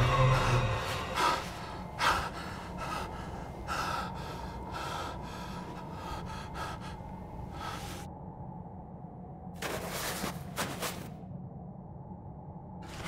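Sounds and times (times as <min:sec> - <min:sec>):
man gasping breaths: 0:01.1 - 0:08.0.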